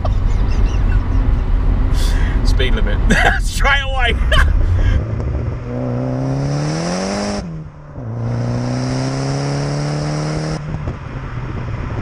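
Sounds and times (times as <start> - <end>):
car engine revving hard: 4.4 - 12.0.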